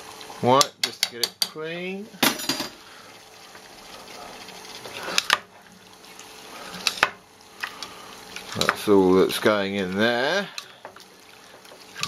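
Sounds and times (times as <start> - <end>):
sauce simmering hiss: 2.8 - 12.0.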